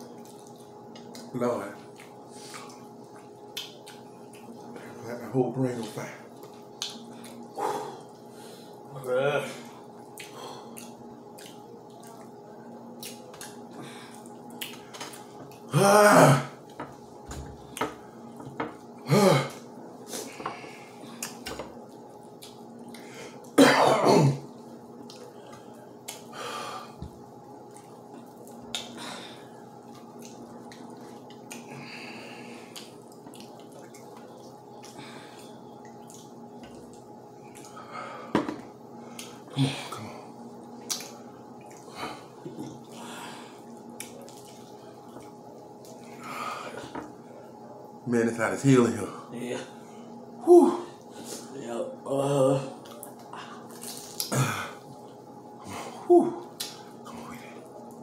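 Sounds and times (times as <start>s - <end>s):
faint steady hum: 0.0s - 58.0s
mouth smacks and clicks eating: 10.1s - 12.3s, 40.8s - 41.9s.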